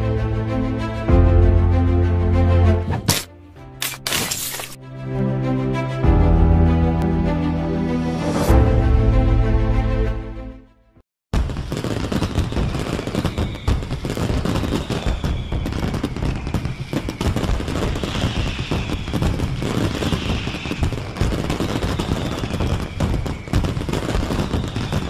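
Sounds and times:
fireworks bangs and crackles: 11.3 - 25.0
faint high whistles: 14.6 - 25.0.

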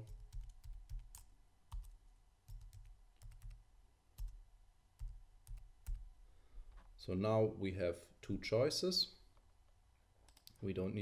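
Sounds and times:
faint keyboard typing: 0.0 - 3.6, 4.2 - 4.4, 5.0 - 6.1, 10.2 - 10.7.

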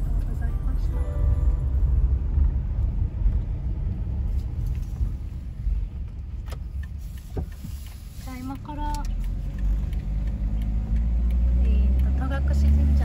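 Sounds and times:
van driving rumble: 0.0 - 13.0.

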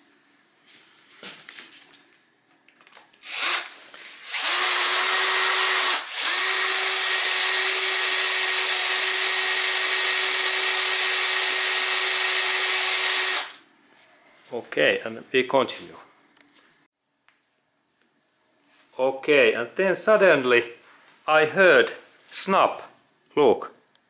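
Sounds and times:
cordless drill boring into metal: 3.2 - 13.6.

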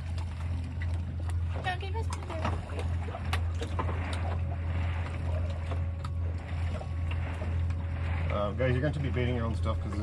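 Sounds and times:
boat low rumble: 0.0 - 10.0.

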